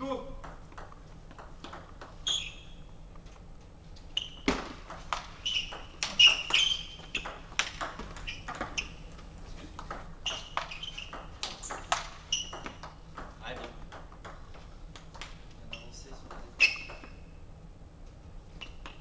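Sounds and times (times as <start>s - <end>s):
ping pong ball clicking: 0.4s - 2.2s, 4.8s - 9.2s, 9.8s - 17.3s
shoes squeaking on floor: 2.1s - 2.9s, 4.0s - 9.1s, 10.2s - 13.0s, 15.6s - 17.3s.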